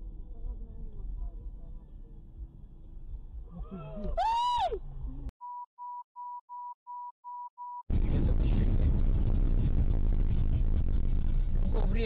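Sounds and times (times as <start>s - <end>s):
car rumble and road noise: 0.0s - 5.3s
short electronic beeps: 5.4s - 7.8s.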